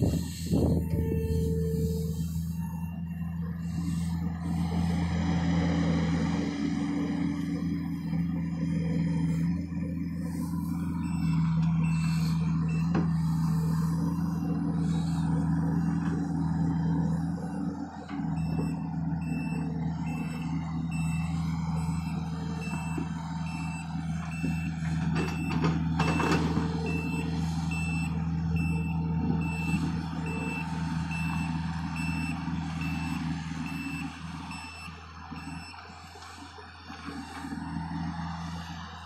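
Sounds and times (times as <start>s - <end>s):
backup alarm beeping: 0.0s - 4.1s, 18.4s - 35.8s
excavator diesel engine running: 0.0s - 39.0s.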